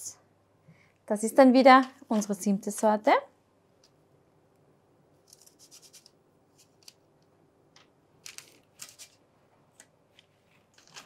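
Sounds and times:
faint scraping and paper rustling: 5.2s - 7.0s, 8.2s - 11.0s.

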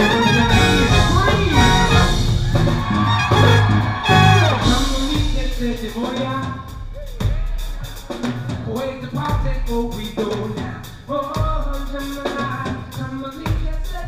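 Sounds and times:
trombone and saxophone notes: 0.0s - 5.4s
drum kit beat: 0.0s - 14.0s.

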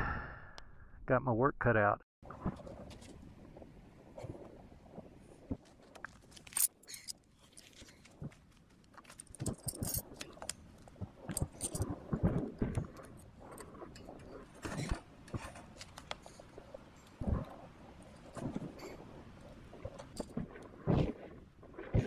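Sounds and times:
gear rustling: 5.7s - 10.6s
tools clinking and knocking: 9.0s - 10.6s.

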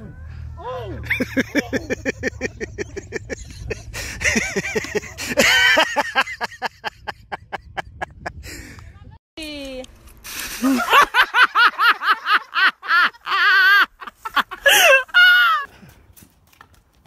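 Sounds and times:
person laughing hard: 1.1s - 8.4s, 10.5s - 15.7s
shriek of laughter: 10.5s - 15.7s.

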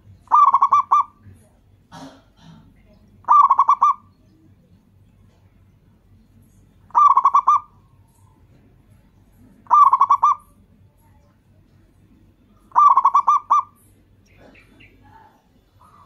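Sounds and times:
dove cooing: 0.0s - 1.5s, 3.2s - 4.2s, 6.9s - 8.6s, 9.4s - 10.6s, 12.6s - 16.0s.

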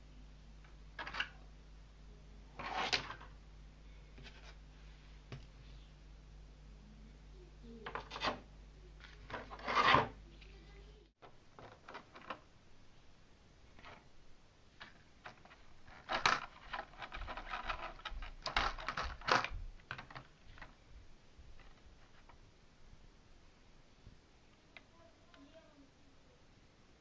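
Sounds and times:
plastic packaging scraping and crinkling: 2.6s - 3.3s, 9.0s - 10.2s, 15.2s - 20.7s.

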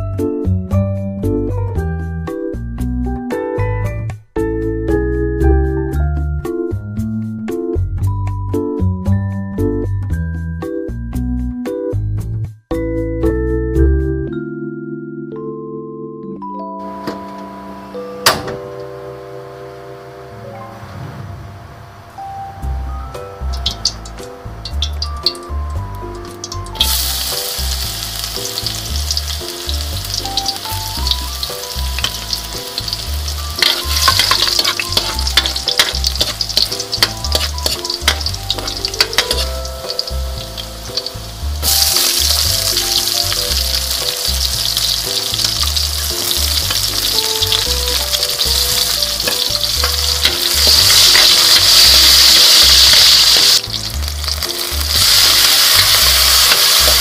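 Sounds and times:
garlic sizzling in hot oil: 23.4s - 57.0s.

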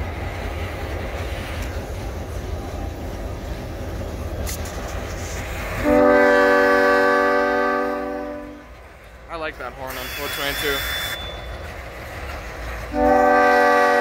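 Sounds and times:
diesel locomotives rumbling: 0.0s - 14.0s
locomotive horn chord: 5.8s - 8.7s, 12.9s - 14.0s.

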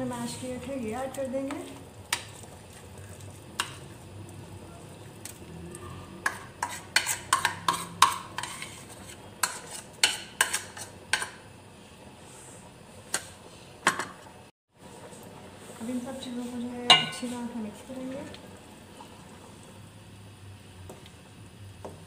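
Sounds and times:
utensil scraping against a plate: 6.2s - 11.3s.

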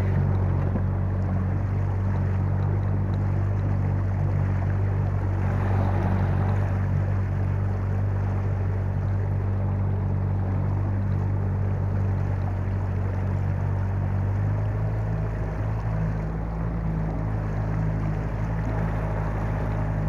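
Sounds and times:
outboard motor running: 0.0s - 20.0s
water noise: 0.0s - 20.0s.

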